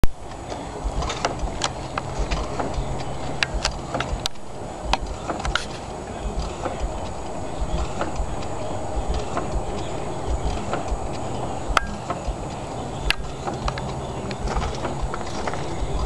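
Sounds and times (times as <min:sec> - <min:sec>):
valve gear ticking and knocking: 0:00.0 - 0:16.0
steam engine idling: 0:00.1 - 0:16.0.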